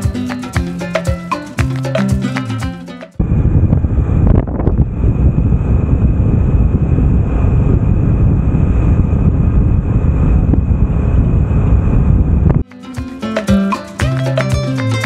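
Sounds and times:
wind noise on microphone: 0:03.2 - 0:12.7.

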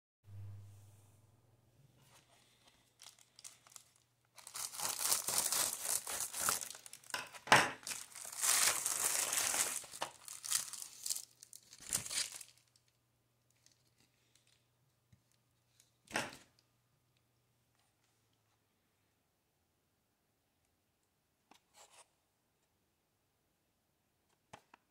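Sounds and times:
plastic mailer tearing and crinkling: 0:03.0 - 0:12.7.

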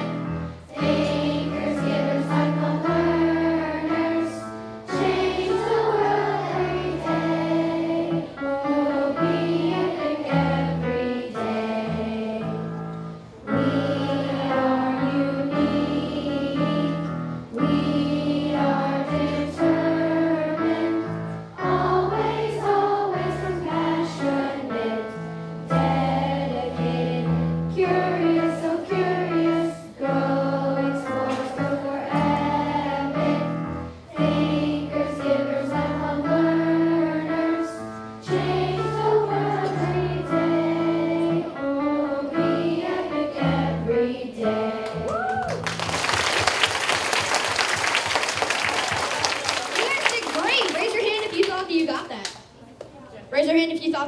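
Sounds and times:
children singing together: 0:00.0 - 0:45.1
piano accompaniment: 0:00.0 - 0:50.0
applause: 0:45.3 - 0:52.1.

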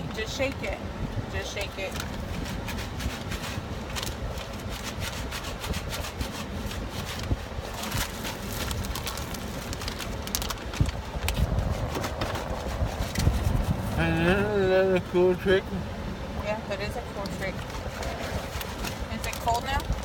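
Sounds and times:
plastic pack crinkling and rattling: 0:06.2 - 0:12.6, 0:17.6 - 0:20.0.

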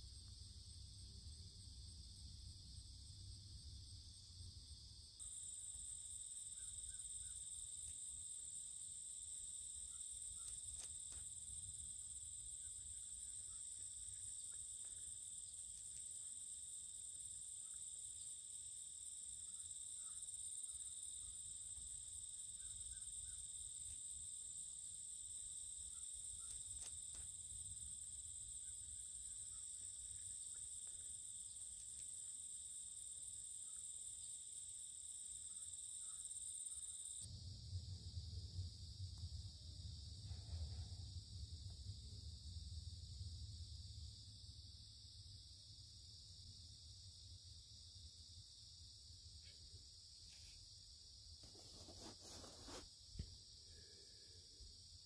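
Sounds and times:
insects trilling: 0:02.2 - 0:55.0
faint low rumble: 0:37.3 - 0:45.3.

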